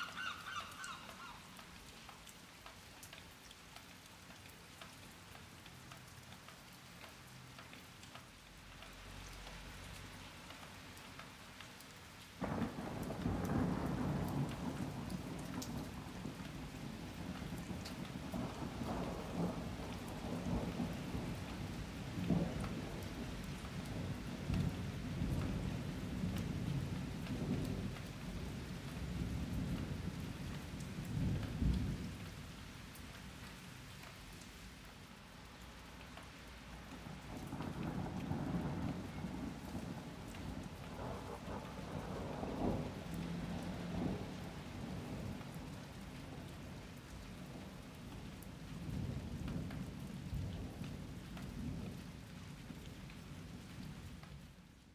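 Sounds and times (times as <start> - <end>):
raindrops ticking: 0.0 - 54.9
steady rain: 0.0 - 54.9
thunder rumbling: 12.4 - 32.2, 37.0 - 46.7.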